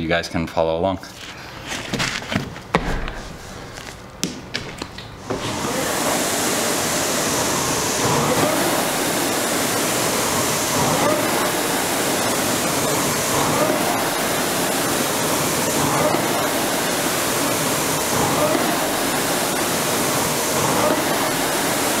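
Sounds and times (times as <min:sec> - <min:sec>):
rowing machine fan whooshing: 0:05.2 - 0:22.0.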